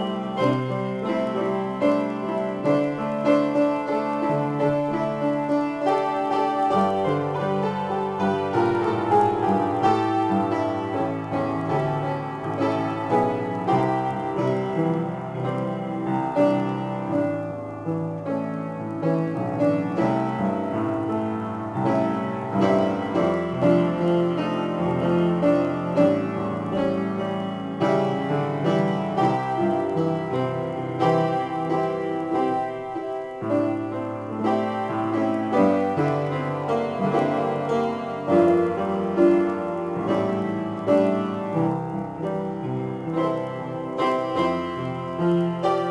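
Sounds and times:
solo piano improvisation: 0.0 - 45.9.

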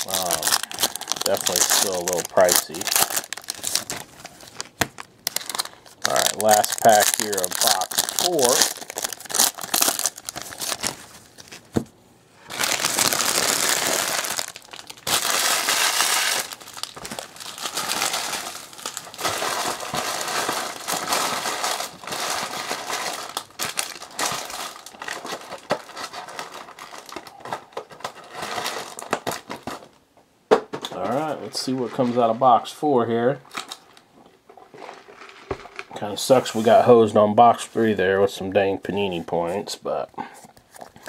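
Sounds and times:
foil wrapper crinkling: 0.0 - 11.7, 12.5 - 30.0.

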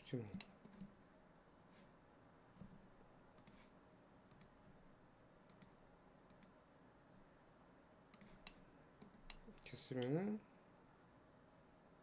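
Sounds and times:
faint mouse clicks: 2.6 - 3.7, 4.3 - 4.8, 5.4 - 7.3, 8.1 - 10.2.

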